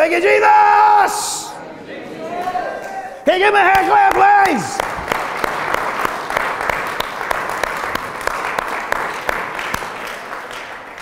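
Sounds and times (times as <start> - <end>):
congregation applauding: 2.4 - 11.0.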